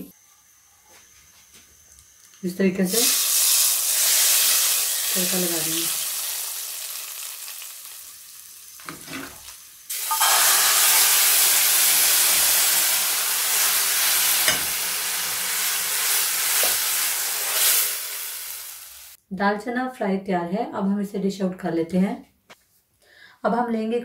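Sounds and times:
hot oil sizzling: 2.0 - 19.2
loud sizzle in hot pan: 2.8 - 19.2.

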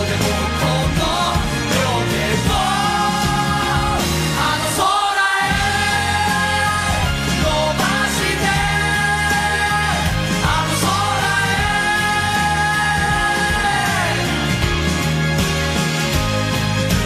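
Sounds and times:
live pop band with singing: 0.0 - 17.0.

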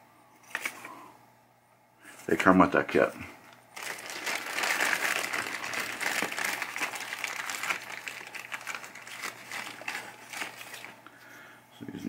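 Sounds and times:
plastic bag crinkling: 3.7 - 11.1.

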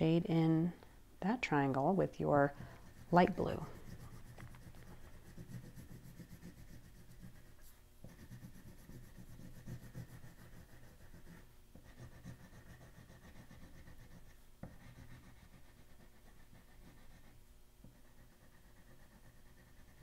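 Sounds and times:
oil pastel rubbing on paper: 2.4 - 17.4.

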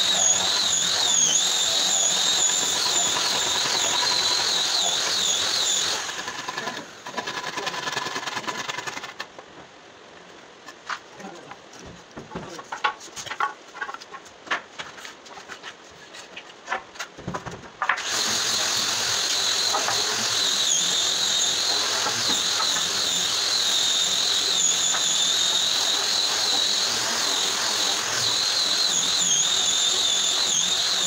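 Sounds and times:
power tool whining: 0.0 - 9.2, 18.0 - 31.0.

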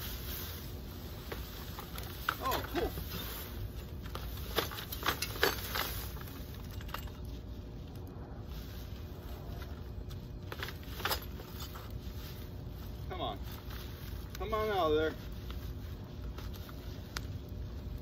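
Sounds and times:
plastic bagging rustling: 0.0 - 7.9.

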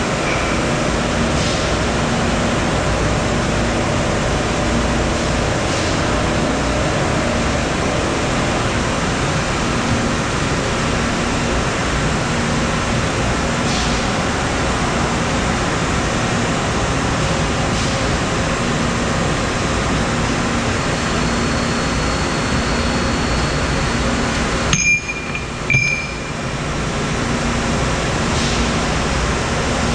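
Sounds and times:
machine shop hum: 0.0 - 29.9
bright metallic rings: 24.7 - 26.4.

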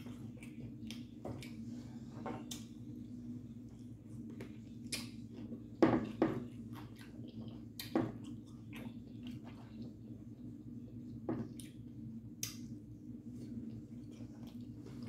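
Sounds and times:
steady low hum: 0.0 - 15.0
wet chewing and squelching: 3.7 - 12.7, 13.6 - 15.0.

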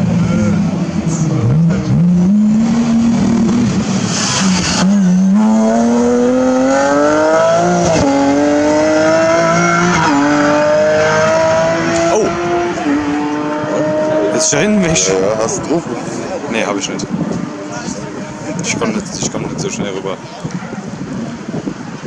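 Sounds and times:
rally car accelerating and upshifting: 0.0 - 19.6.

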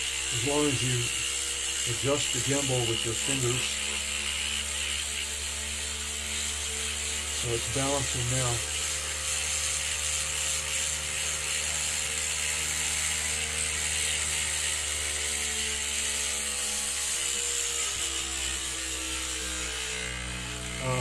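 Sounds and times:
buzzing vibration: 0.0 - 21.0
motor hum and whine: 0.0 - 21.0.

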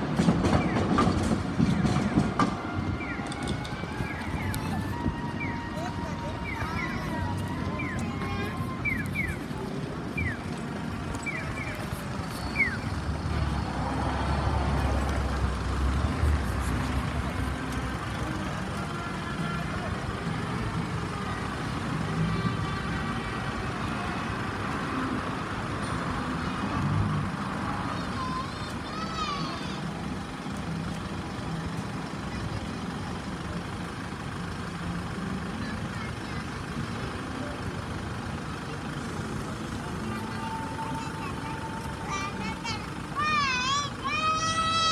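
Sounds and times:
diesel truck engine idling: 0.0 - 44.9
street traffic rumble: 0.0 - 44.9
bird chirps: 11.2 - 12.9.

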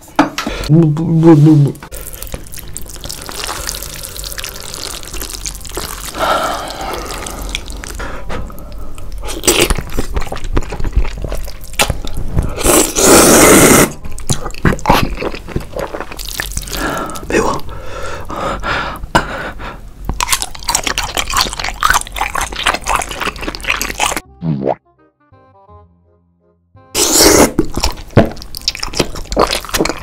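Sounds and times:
wet slurping and chewing: 1.9 - 8.2, 9.0 - 17.3, 20.2 - 24.2, 27.0 - 30.0.

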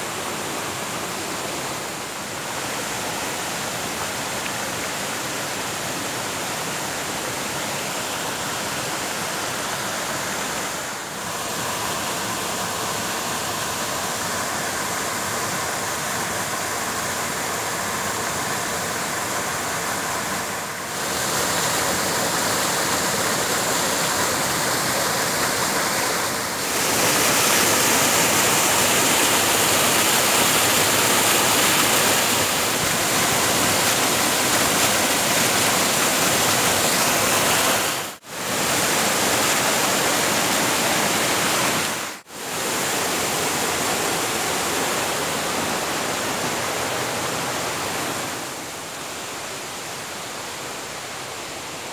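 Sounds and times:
waterfall rushing: 0.0 - 51.9.

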